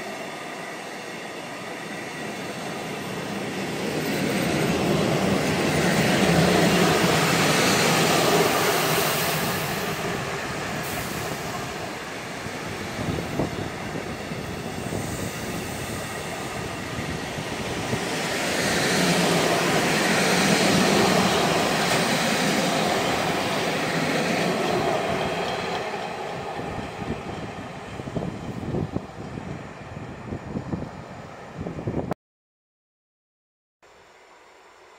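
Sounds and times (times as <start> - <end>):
freight train wheels on rail: 0.0 - 32.1.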